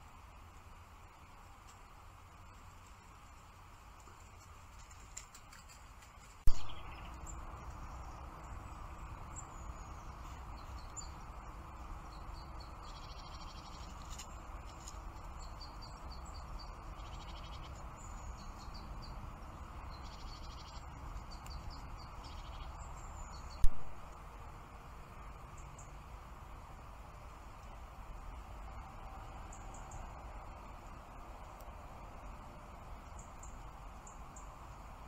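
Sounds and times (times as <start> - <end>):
steady hiss and low rumble: 0.0 - 35.0
bird chirps and trills: 6.5 - 23.6.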